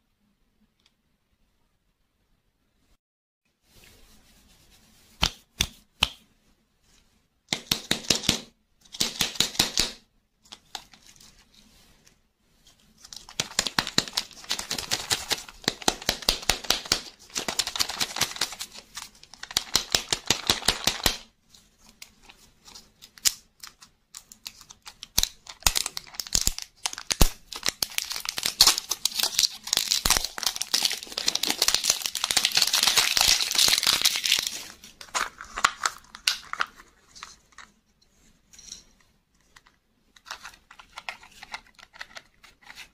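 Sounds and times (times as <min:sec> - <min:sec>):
plastic wrapper crinkling and tearing: 0:13.0 - 0:21.2, 0:22.2 - 0:37.7.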